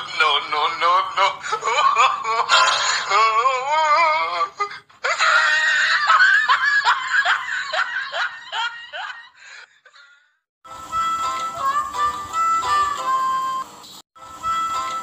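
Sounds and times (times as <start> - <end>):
person laughing: 1.2 - 10.3.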